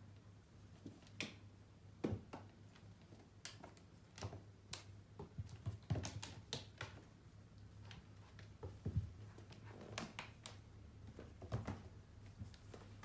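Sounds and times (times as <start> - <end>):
kitten paws thumping on wooden floor: 7.7 - 10.3.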